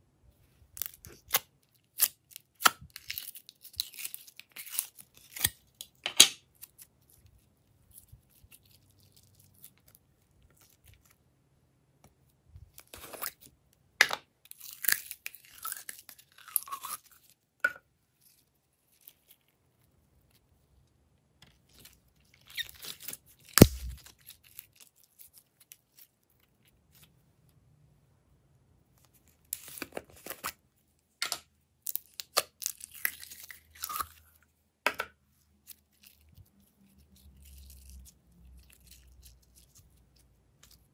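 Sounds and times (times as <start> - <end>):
slime crackling and squishing: 0.7 - 11.2, 21.6 - 27.1, 35.6 - 40.9
slime popping: 23.6 - 24.0.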